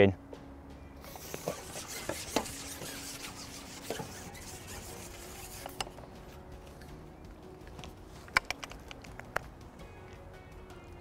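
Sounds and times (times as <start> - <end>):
fishing pole rubbing and sliding: 1.0 - 6.8.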